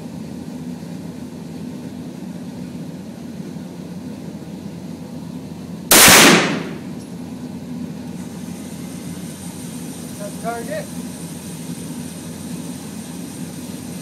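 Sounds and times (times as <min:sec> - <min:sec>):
steady low hum: 0:00.0 - 0:14.0
gunshot with echo: 0:05.9 - 0:06.9.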